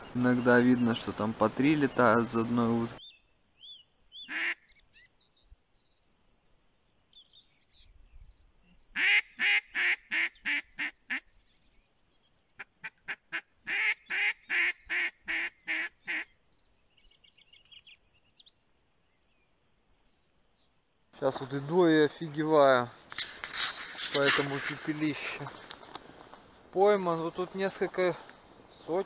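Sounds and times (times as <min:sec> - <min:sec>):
faint songbird twittering: 0:00.0 - 0:29.0
duck quacking loudly: 0:04.3 - 0:04.6, 0:09.0 - 0:11.2, 0:12.8 - 0:16.3.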